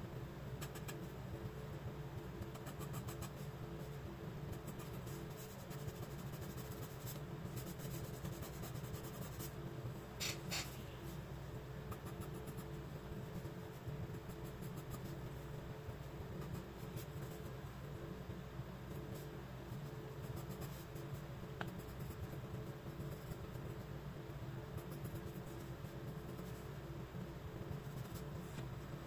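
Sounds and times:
steady low hum: 0:00.0 - 0:29.0
pencil scratching on paper: 0:04.5 - 0:09.6, 0:20.2 - 0:21.0.

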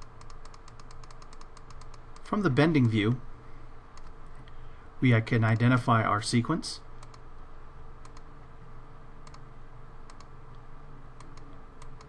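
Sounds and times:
computer mouse clicks: 0:00.0 - 0:02.9, 0:03.9 - 0:04.6, 0:07.0 - 0:07.3, 0:08.0 - 0:08.3, 0:09.2 - 0:09.4, 0:10.0 - 0:10.6, 0:11.2 - 0:12.0
low room hum: 0:00.0 - 0:12.0.

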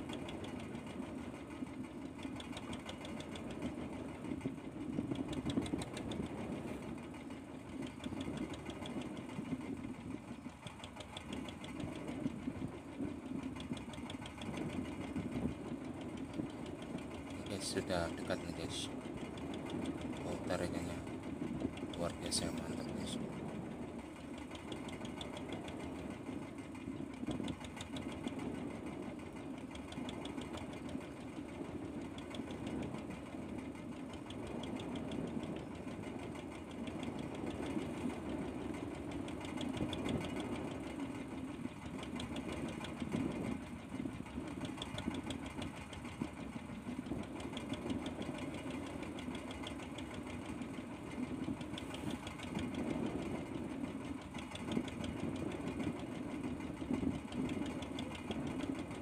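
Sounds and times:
boat engine idling: 0:00.0 - 0:59.0
faint fast ticking: 0:07.8 - 0:09.6, 0:10.3 - 0:12.8, 0:24.0 - 0:26.2, 0:29.5 - 0:33.1, 0:33.9 - 0:59.0.

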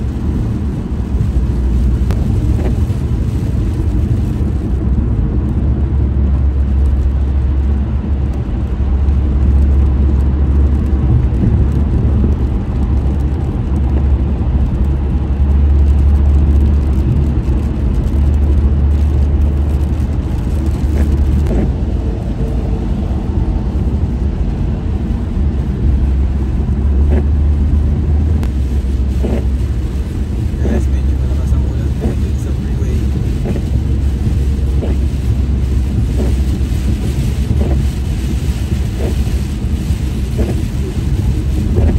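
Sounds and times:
car driving interior rumble: 0:00.0 - 0:41.9
tyre hiss on wet road: 0:28.5 - 0:41.9.

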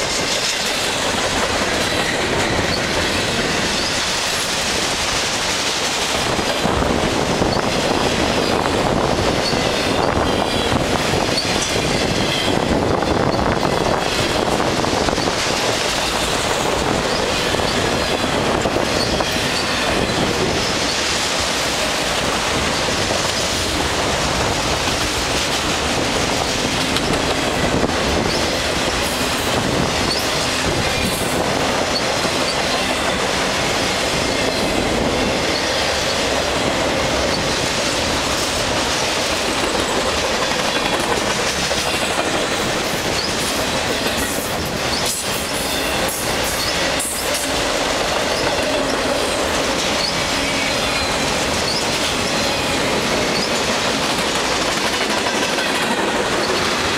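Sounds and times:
freight train rolling past: 0:00.0 - 0:56.9
wheels clacking over rail joints: 0:00.0 - 0:56.9
faint high wheel squeal: 0:50.0 - 0:53.6.

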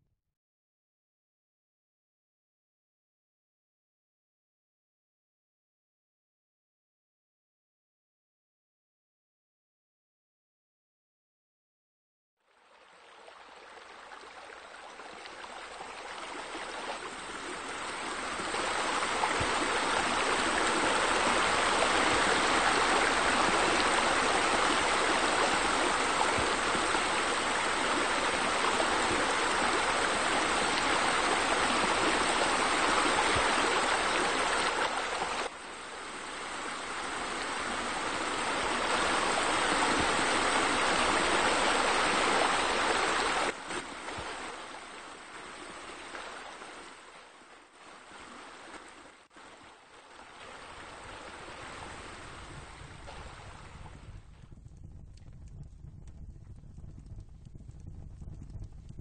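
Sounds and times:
waterfall splashing: 0:15.3 - 0:47.0.

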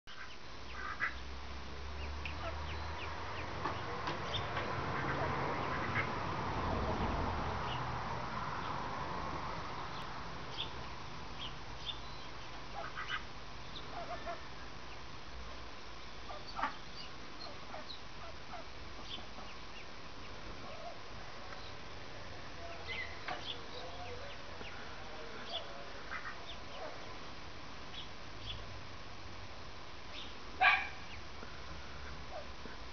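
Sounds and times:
duck quacks: 0:00.1 - 0:01.2, 0:04.9 - 0:06.2, 0:12.7 - 0:13.3, 0:13.9 - 0:14.4, 0:26.0 - 0:26.6
ducklings peeping: 0:00.1 - 0:06.3, 0:09.8 - 0:15.1, 0:15.9 - 0:21.0, 0:22.6 - 0:28.7, 0:30.1 - 0:32.8.

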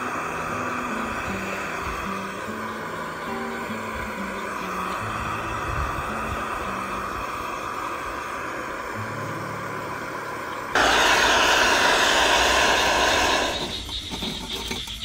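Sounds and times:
soft background music: 0:00.0 - 0:10.8
gas stove burner hissing: 0:00.0 - 0:15.0.

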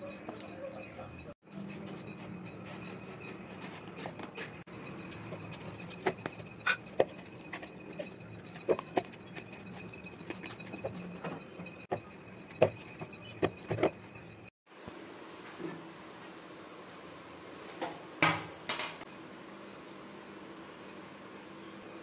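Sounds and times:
hands kneading dough: 0:00.1 - 0:14.1
spoon scraping in plastic bowl: 0:05.0 - 0:12.0
faint high whine: 0:14.3 - 0:19.0.

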